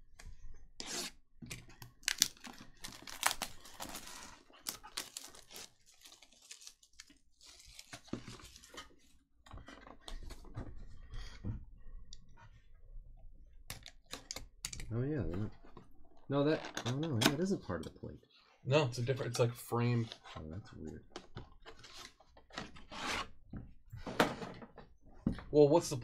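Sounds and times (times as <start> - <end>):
wrapper crinkling and tearing: 2.0 - 8.8.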